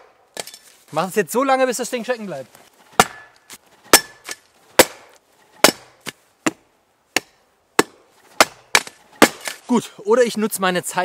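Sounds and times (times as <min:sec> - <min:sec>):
metal shovel hitting tree trunk: 0:00.0 - 0:00.8, 0:02.9 - 0:09.8.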